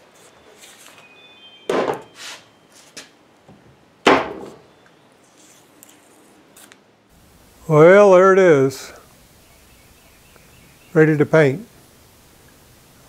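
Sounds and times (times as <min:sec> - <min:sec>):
heavy thuds on wooden bench: 0:04.1 - 0:04.6.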